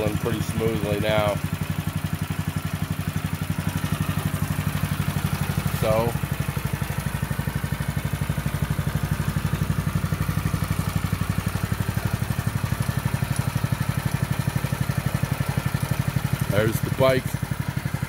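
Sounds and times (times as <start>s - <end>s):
small engine idling: 0.0s - 18.0s.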